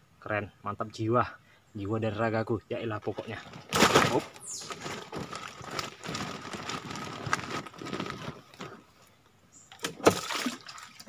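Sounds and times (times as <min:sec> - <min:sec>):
sack rustling and knocking: 0:03.2 - 0:08.8.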